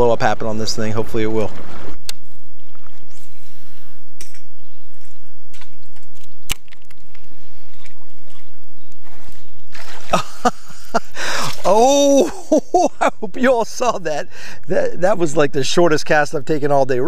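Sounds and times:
faint water sounds: 7.2 - 16.2.

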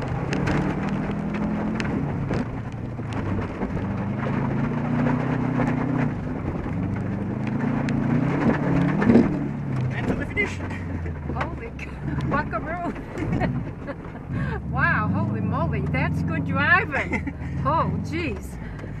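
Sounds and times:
stones ticking against car body: 0.0 - 14.3
car engine running hard: 0.0 - 19.0.

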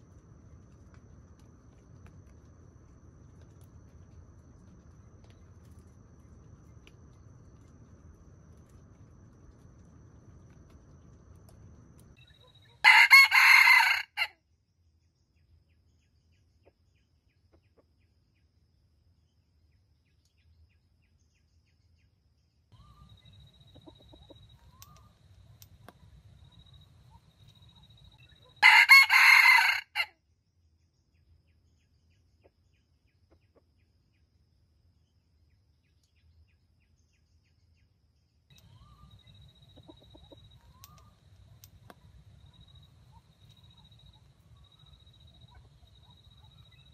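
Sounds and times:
rooster crowing: 12.8 - 14.4, 28.5 - 30.1.

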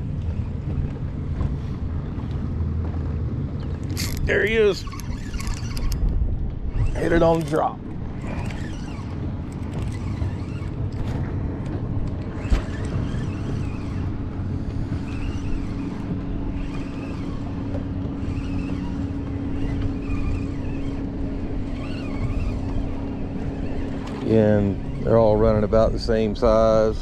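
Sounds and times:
motorboat engine droning: 0.0 - 27.0
water noise: 0.0 - 27.0
wind: 0.0 - 27.0.

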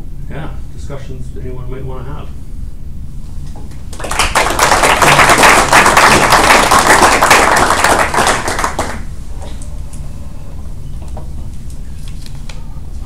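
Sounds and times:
audience applauding: 3.9 - 9.1.

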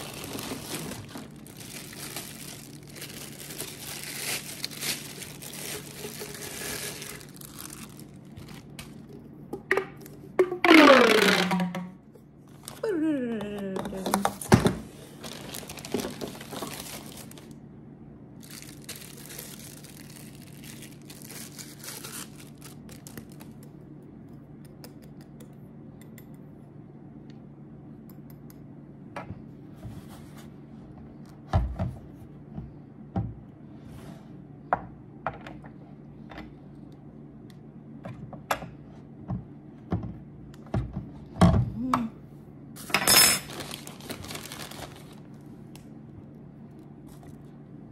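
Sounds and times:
plastic packaging crinkling: 0.0 - 9.1, 14.9 - 17.6, 18.4 - 23.6, 42.8 - 45.8
low steady hum: 0.0 - 47.9.

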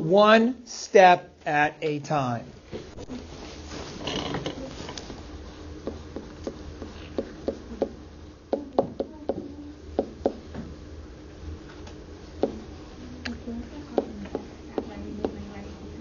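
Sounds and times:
faint steady hum: 0.0 - 16.0
marker writing on whiteboard: 5.8 - 8.0.

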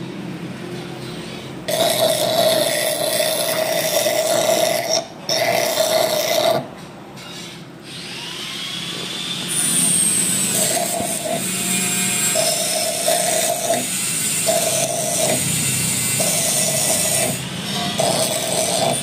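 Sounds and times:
electric power tool whining: 7.8 - 19.0.

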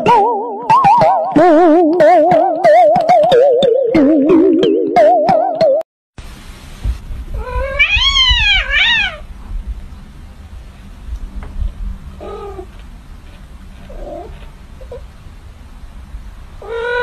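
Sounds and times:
kitten meowing: 7.4 - 9.3, 16.6 - 17.0.

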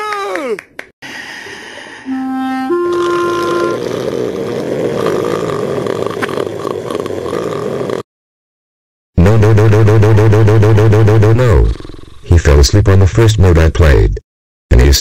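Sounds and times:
held oboe notes: 2.1 - 3.8
cartoon snoring: 2.7 - 8.1, 9.2 - 12.1.

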